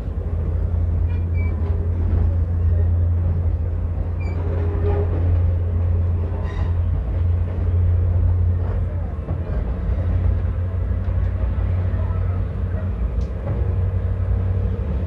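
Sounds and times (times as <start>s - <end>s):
train rumbling: 0.0s - 15.0s
faint passenger voices: 0.4s - 6.2s, 6.9s - 14.6s.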